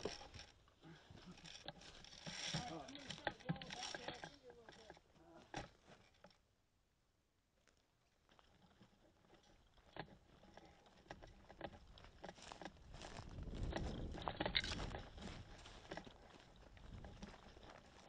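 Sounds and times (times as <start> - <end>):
clothing rustling against camera: 11.6 - 18.0.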